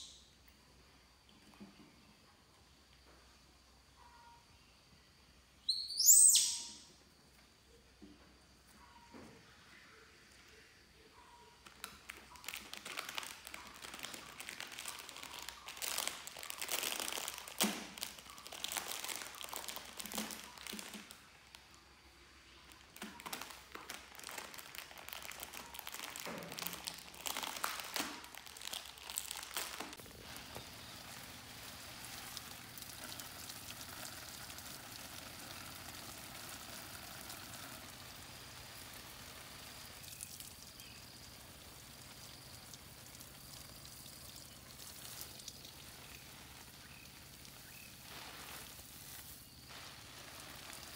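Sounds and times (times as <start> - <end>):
faint steady hiss: 0.0 - 50.9
plastic wrapping crinkling: 11.6 - 21.8, 22.5 - 39.8, 44.5 - 50.9.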